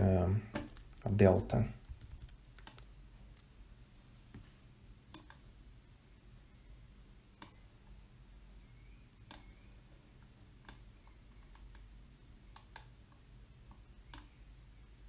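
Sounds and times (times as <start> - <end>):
faint low hum: 0.0 - 15.0
faint sharp clicks: 7.4 - 7.6, 9.2 - 9.6, 13.7 - 14.4.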